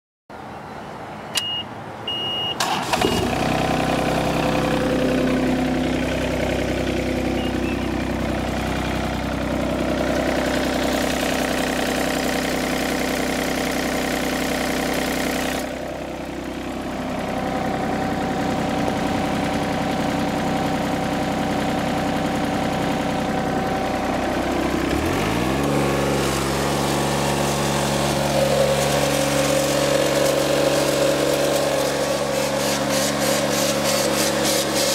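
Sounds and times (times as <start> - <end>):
diesel engine starting and running: 0.3 - 34.9
short high beeps: 1.4 - 2.6.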